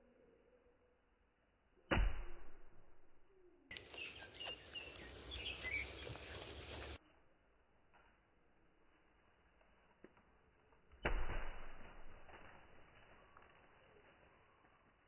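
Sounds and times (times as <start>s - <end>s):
slowed axe strike thud: 1.9s - 3.1s, 10.9s - 12.3s
birds chirping: 3.3s - 7.0s.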